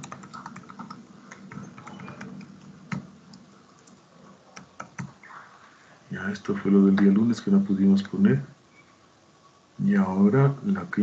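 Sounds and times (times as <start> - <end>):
computer keyboard typing: 0.0 - 5.2.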